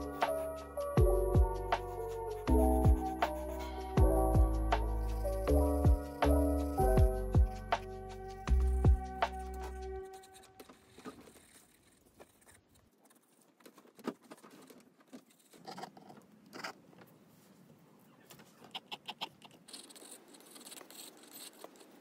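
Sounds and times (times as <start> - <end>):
pencil scratching on paper: 1.5 - 12.5, 19.6 - 22.0.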